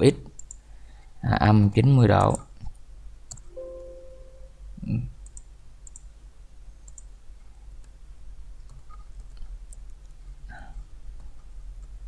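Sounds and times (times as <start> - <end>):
low electrical hum: 0.0 - 12.0
computer mouse and keyboard clicks: 0.3 - 0.6, 5.2 - 6.1, 6.9 - 7.1, 8.6 - 10.2.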